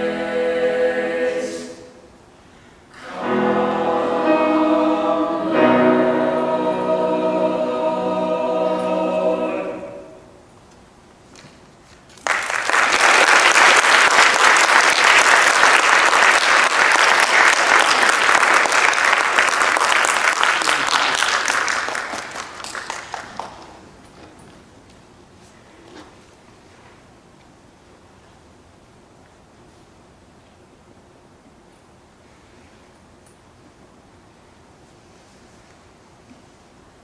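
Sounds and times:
choir singing: 0.0s - 2.1s, 3.0s - 10.4s
audience applause: 12.2s - 23.9s.

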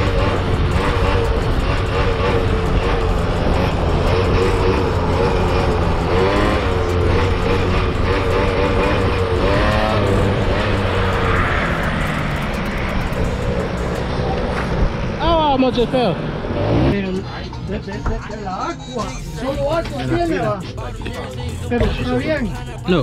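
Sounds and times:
quad two-stroke engine revving: 0.0s - 17.3s.

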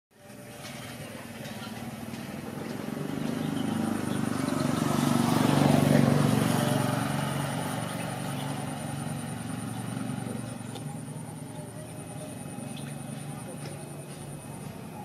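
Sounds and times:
small motorcycle engine running: 0.2s - 15.0s.

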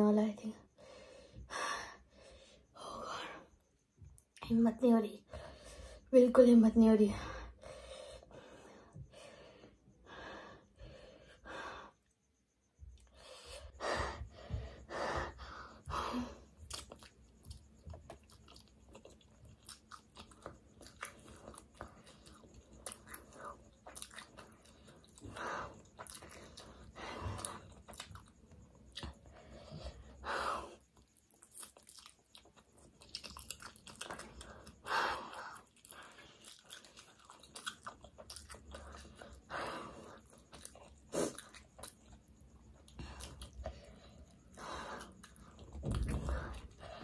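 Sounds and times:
wet chewing: 16.4s - 47.0s.

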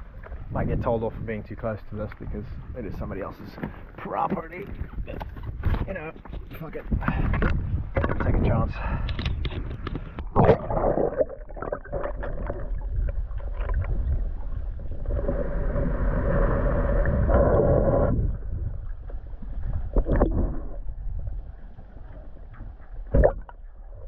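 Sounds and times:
water sloshing and gurgling: 0.0s - 24.0s
steady low rumble: 6.6s - 24.0s.

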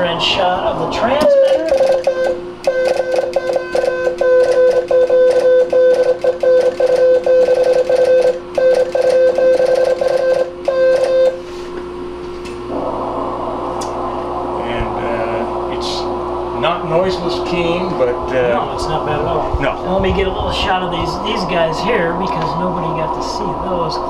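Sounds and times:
steady hum: 0.0s - 24.0s
morse code tone: 1.3s - 11.4s.

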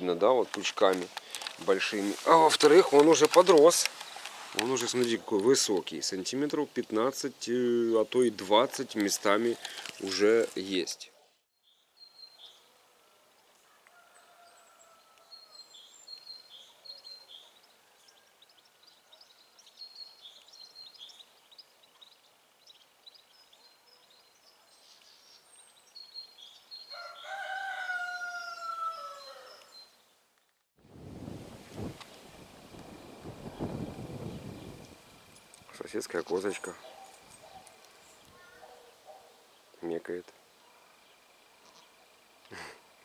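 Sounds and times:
small birds chirping: 0.0s - 12.8s, 13.4s - 30.2s, 32.2s - 43.0s
rooster crowing: 13.6s - 15.7s, 26.9s - 29.8s.

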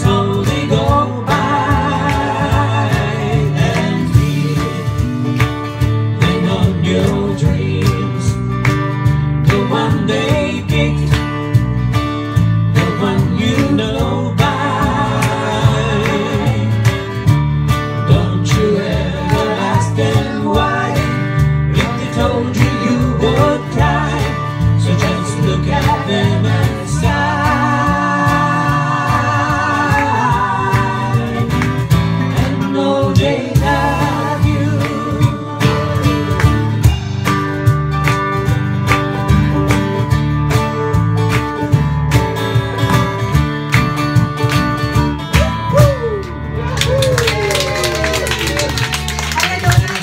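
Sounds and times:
voices singing together: 0.0s - 8.5s, 9.4s - 11.3s, 12.8s - 17.3s, 18.0s - 37.2s
acoustic guitar and plucked strings: 0.0s - 46.6s.

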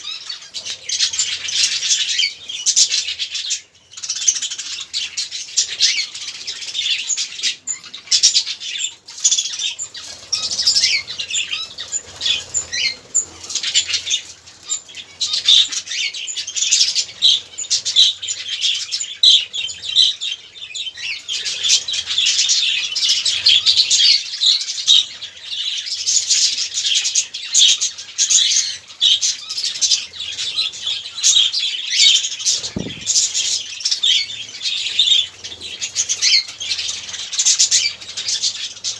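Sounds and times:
budgerigars chattering and chirping: 0.0s - 38.9s
wing flutters: 32.4s - 33.6s.

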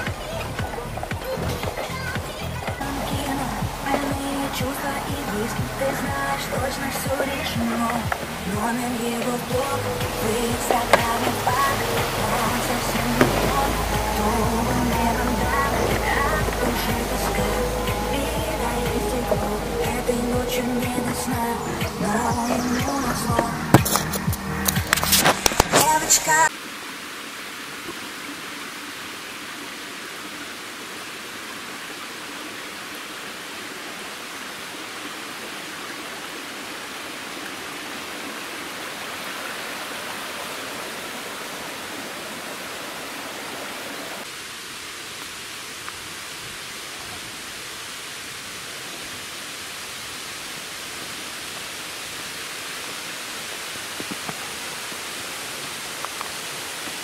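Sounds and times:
flowing water rushing: 0.0s - 57.0s.

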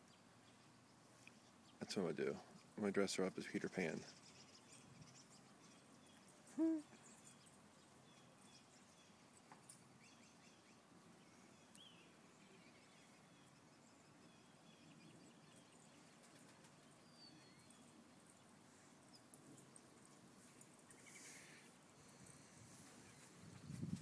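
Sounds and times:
faint bird chirps: 0.0s - 23.8s
hoot-like animal call: 6.5s - 7.0s.

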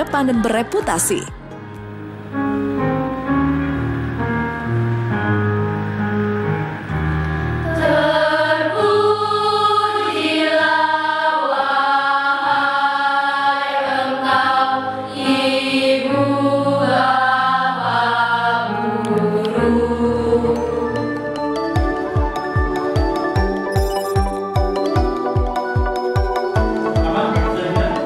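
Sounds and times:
children's choir singing: 7.6s - 21.4s.

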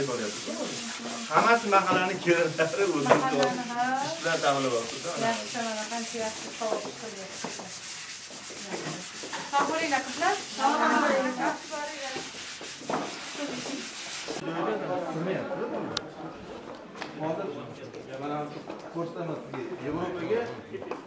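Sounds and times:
scratchy rubbing noise: 0.0s - 14.4s.

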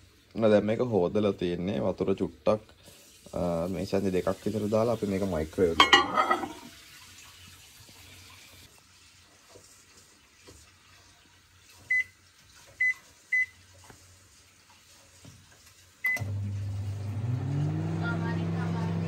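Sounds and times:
microwave keypad beeps: 11.9s - 12.1s, 12.8s - 13.6s, 16.0s - 16.3s
microwave oven humming: 16.0s - 19.0s.

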